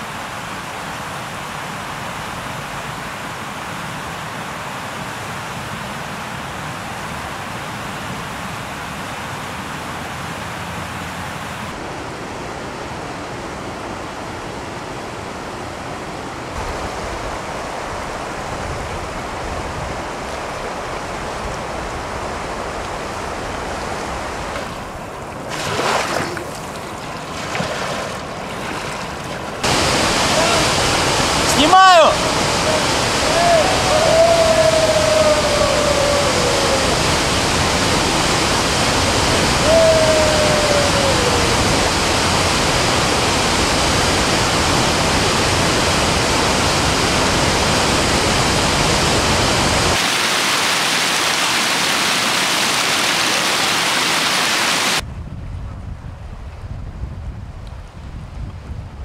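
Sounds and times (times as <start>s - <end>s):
river rushing: 0.0s - 55.0s
wind on microphone: 16.5s - 26.4s, 32.2s - 50.0s, 54.9s - 59.0s.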